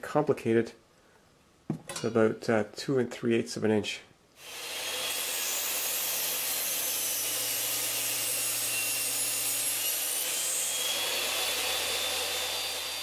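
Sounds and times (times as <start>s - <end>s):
table saw cutting wood: 4.4s - 13.0s.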